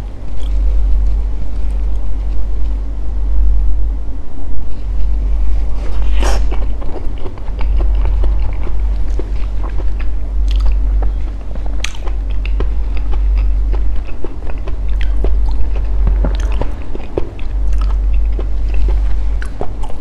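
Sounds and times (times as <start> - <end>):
low hum: 0.0 - 20.0
close-up chewing: 5.6 - 20.0.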